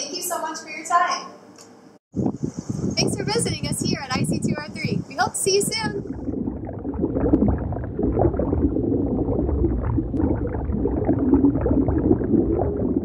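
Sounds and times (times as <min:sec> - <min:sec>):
underwater bubbling: 0:05.7 - 0:13.0.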